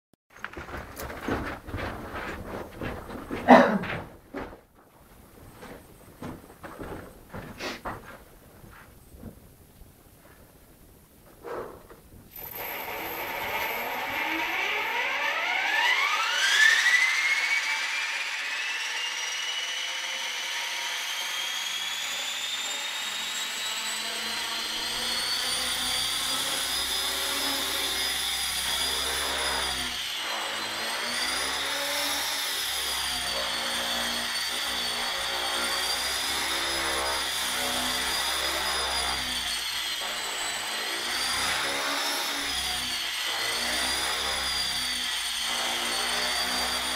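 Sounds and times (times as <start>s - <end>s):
rc helicopter motor whine: 12.3s - 46.9s.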